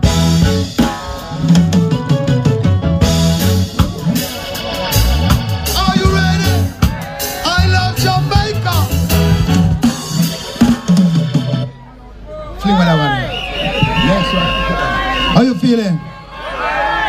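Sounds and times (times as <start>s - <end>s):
live reggae band: 0.0s - 17.0s
people singing: 0.4s - 2.5s, 3.8s - 8.7s.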